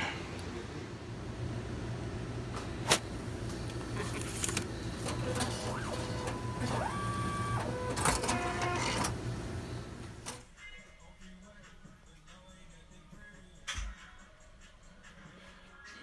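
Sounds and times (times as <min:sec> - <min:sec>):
steady hum: 0:00.0 - 0:10.4
motors whirring: 0:03.5 - 0:10.4
cash dispenser clicks: 0:03.7 - 0:09.2.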